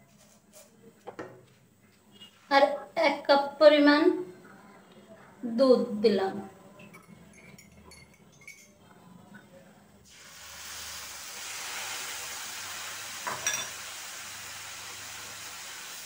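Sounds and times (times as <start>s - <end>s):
milk sizzling in hot pan: 10.0s - 16.0s.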